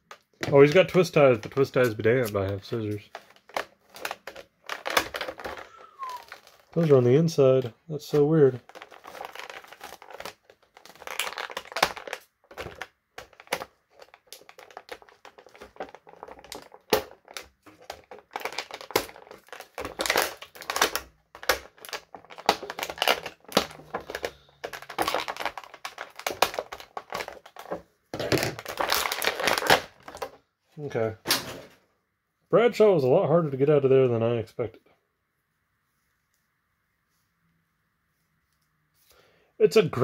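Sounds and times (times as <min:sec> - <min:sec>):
plastic packaging crinkling: 0:00.5 - 0:07.3, 0:08.0 - 0:30.4.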